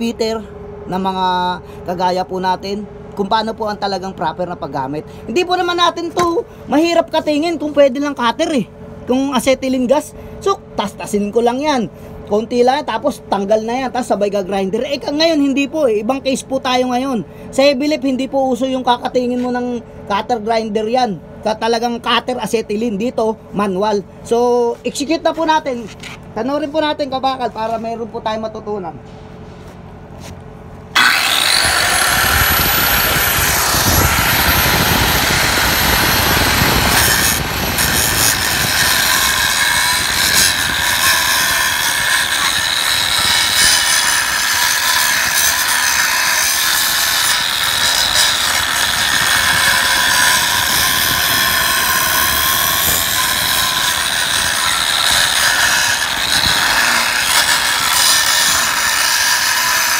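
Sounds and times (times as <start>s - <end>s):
angle grinder cutting steel: 30.9s - 59.9s.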